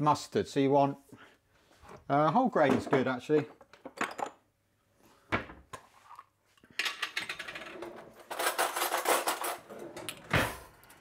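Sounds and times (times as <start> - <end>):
cutlery scraping in a jar: 8.2 - 9.7.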